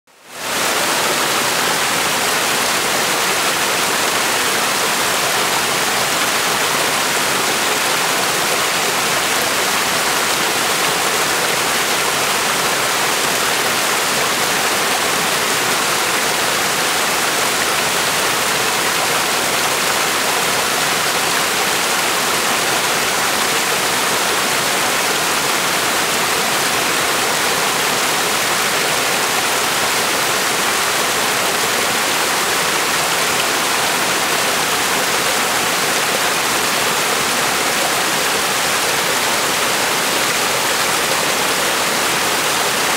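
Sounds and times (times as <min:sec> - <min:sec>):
waterfall splashing over rocks: 0:00.1 - 0:42.9.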